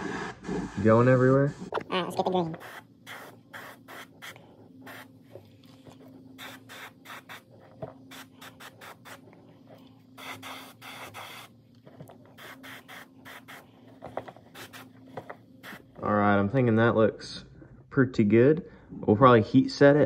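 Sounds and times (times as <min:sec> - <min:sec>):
airbrush spraying: 0:02.5 - 0:05.1, 0:06.4 - 0:09.3, 0:10.2 - 0:11.5, 0:12.4 - 0:13.7, 0:14.4 - 0:15.0, 0:15.6 - 0:16.0.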